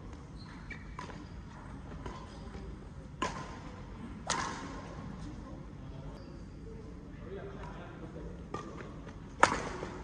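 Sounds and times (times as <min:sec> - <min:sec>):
rackets striking shuttlecock: 0:03.2 - 0:04.8, 0:09.4 - 0:10.0.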